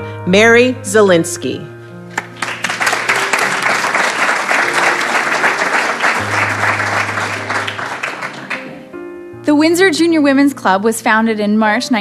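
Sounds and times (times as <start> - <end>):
background music: 0.0 - 12.0
audience applauding: 2.1 - 8.9.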